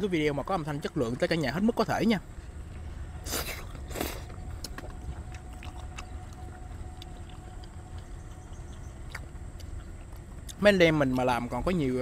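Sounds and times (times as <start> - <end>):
steady low rumble: 0.0 - 12.0
soft chewing: 2.2 - 12.0
slurping noodles: 3.2 - 4.3.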